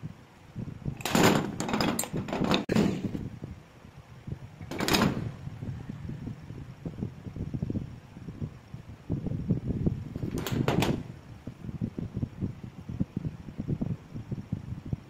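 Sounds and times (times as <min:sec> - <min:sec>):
low background rumble: 0:00.0 - 0:15.0
metal parts scraping and knocking: 0:01.0 - 0:03.2.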